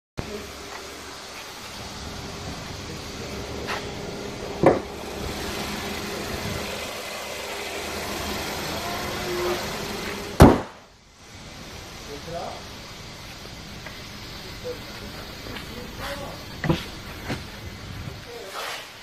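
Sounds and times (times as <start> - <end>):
car engine idling: 0.2 - 18.6
car hood clunk: 4.6 - 5.0, 10.4 - 10.8
car hood slamming: 4.6 - 5.0, 10.4 - 10.8.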